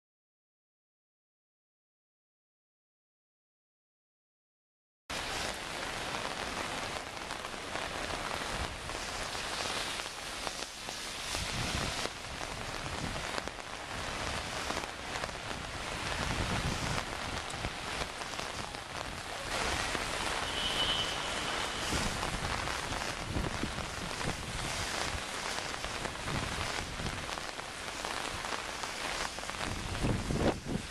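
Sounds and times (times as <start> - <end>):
rain on wet pavement: 5.1 - 30.9
high steady tone: 20.1 - 22.3.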